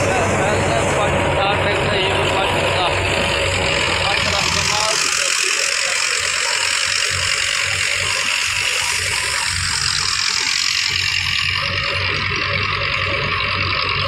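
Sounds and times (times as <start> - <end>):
thresher rushing and hissing: 0.0 - 12.2
diesel engine throb: 0.0 - 14.0.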